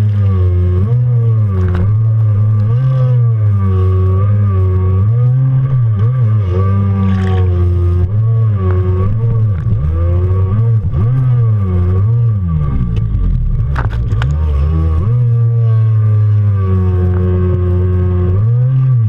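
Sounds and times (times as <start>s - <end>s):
jet ski engine revving: 0.0s - 19.0s.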